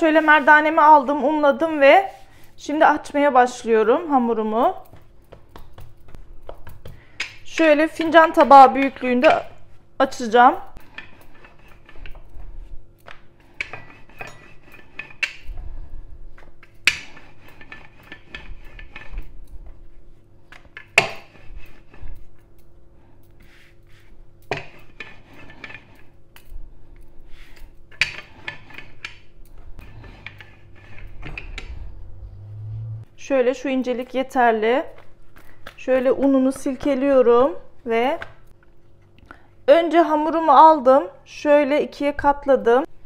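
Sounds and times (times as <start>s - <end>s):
rolling pin rolling dough: 16.2s - 22.2s.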